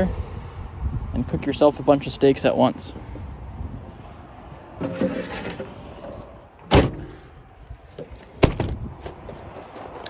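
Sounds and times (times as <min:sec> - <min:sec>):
truck door thumping shut: 0:06.6 - 0:07.1, 0:08.4 - 0:08.9.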